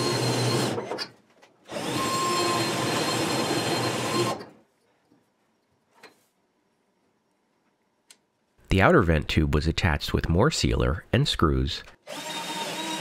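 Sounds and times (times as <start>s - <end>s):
power drill driving screws: 0.0s - 1.1s, 1.7s - 4.5s, 12.0s - 13.0s.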